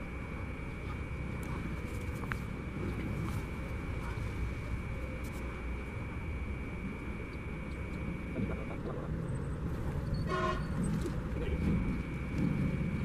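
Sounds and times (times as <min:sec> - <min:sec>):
train rumbling along track: 0:06.7 - 0:13.0
train horn toot: 0:10.2 - 0:10.8.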